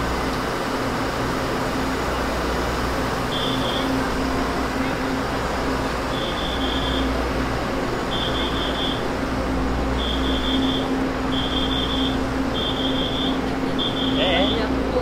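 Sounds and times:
noisy background: 0.0 - 15.0.

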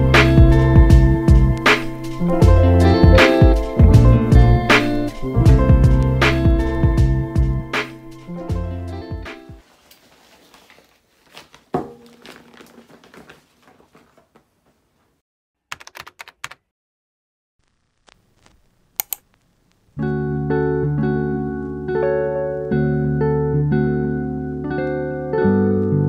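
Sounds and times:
background music: 0.0 - 9.6, 20.0 - 26.0
shopping bag rustling: 9.6 - 15.2
bag thunk on wooden table: 11.3 - 14.2
small clicks: 17.6 - 19.8.

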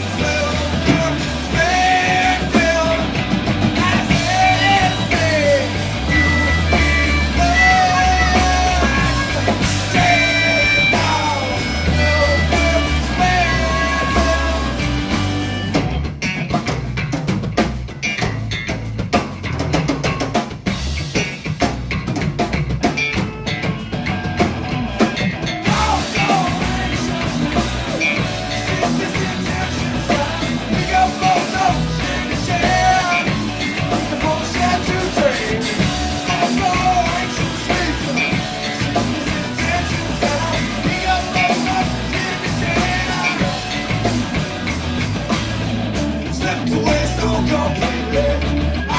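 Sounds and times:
drum kit: 0.0 - 48.9
live rock band playing: 0.0 - 48.9.

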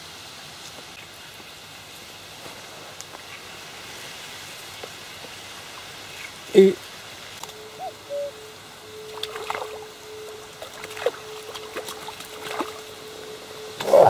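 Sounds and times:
fish splashing in water: 9.1 - 13.0.

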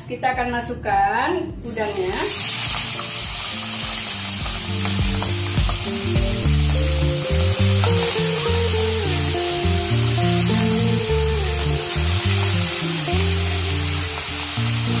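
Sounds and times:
background music of held notes: 1.0 - 15.0
shrimp sizzling in a pan: 1.7 - 15.0
spatula tapping a pan: 4.4 - 7.0.

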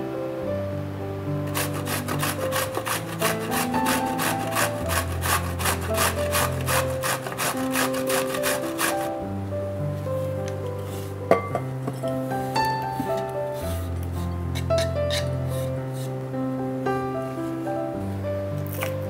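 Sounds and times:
zucchini grating on metal grater: 1.5 - 9.2, 13.6 - 15.6.

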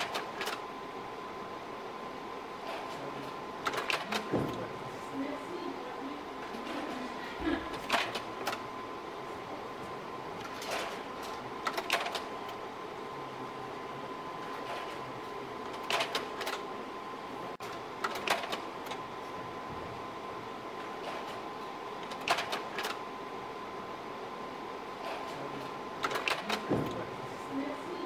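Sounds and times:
mechanical clicks and clunks: 0.0 - 0.7, 2.6 - 4.7, 7.7 - 8.7, 10.4 - 12.6, 15.6 - 16.7, 17.5 - 19.1, 20.8 - 23.1, 25.0 - 27.1
projector humming and whining: 0.0 - 28.0.

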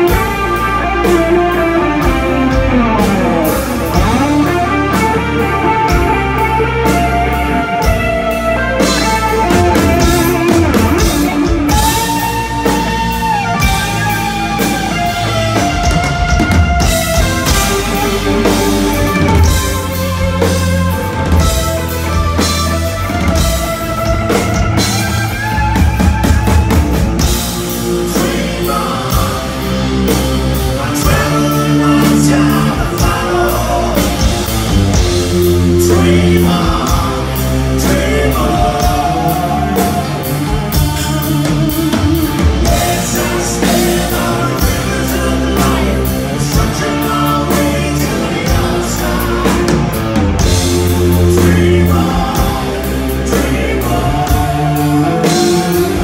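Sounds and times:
hard rock band playing: 0.0 - 56.0
singer singing: 27.2 - 56.0.

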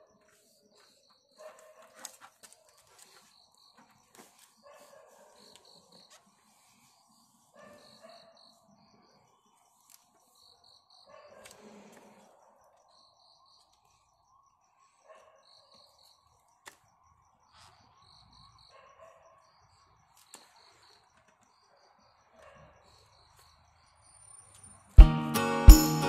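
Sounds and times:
cricket chirping: 5.5 - 24.9
music with strong beat and jingling: 25.0 - 26.0.

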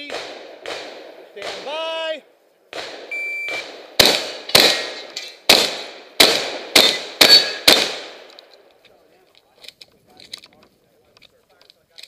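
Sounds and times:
shotgun shots: 0.0 - 1.9, 2.7 - 8.3.

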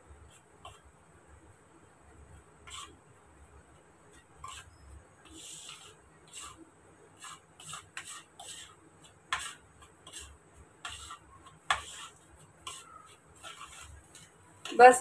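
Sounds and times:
metal spoon scraping plastic plate: 2.6 - 3.0, 4.1 - 6.6, 7.2 - 14.8.

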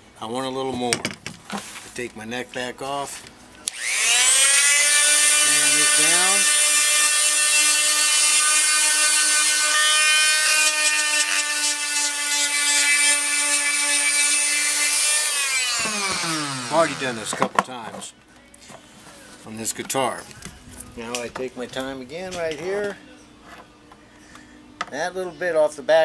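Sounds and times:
electric sander whining: 3.7 - 17.4.

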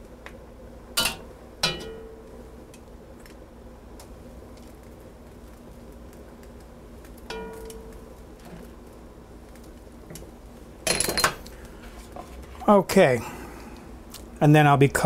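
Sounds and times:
metal tongs clanking on pot: 1.0 - 2.2, 7.3 - 8.6.

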